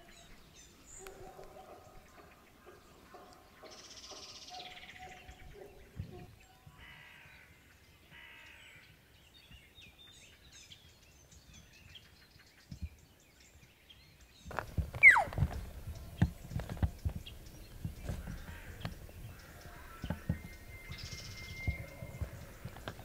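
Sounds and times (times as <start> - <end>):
small birds chirping: 0.0 - 7.0, 7.8 - 23.0
elk call sliding down: 15.0 - 15.5.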